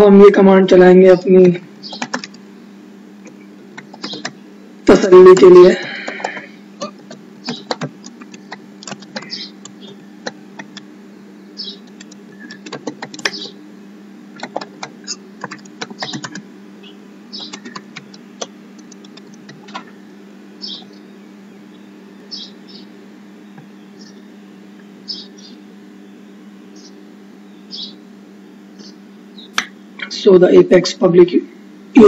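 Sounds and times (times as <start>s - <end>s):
steady low hum: 0.0s - 32.0s
keyboard typing: 1.9s - 2.4s, 3.7s - 4.4s, 5.3s - 10.8s, 11.7s - 13.5s, 14.3s - 16.4s, 17.4s - 19.9s.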